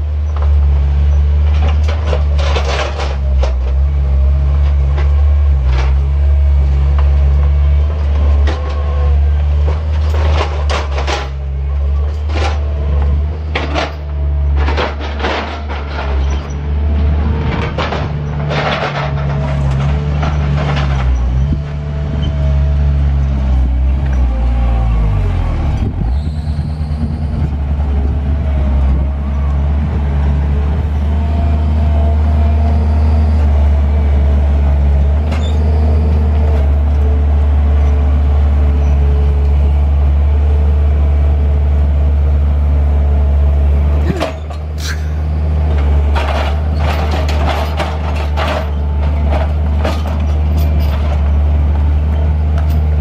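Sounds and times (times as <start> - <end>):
diesel engine running under load: 0.0 - 53.0
metal clanks and knocks: 9.6 - 22.3, 44.0 - 51.4.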